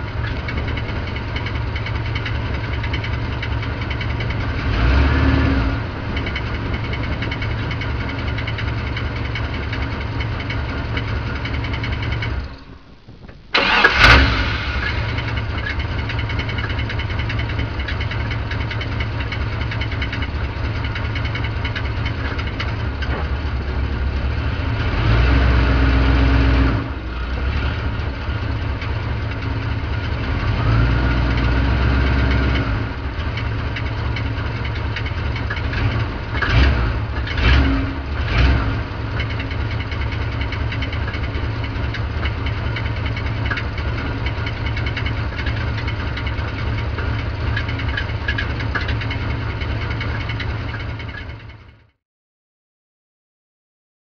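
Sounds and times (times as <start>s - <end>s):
car engine idling: 0.0s - 25.1s, 26.8s - 52.0s
loose flexplate rattling: 6.0s - 14.0s, 14.9s - 23.9s, 39.2s - 51.7s.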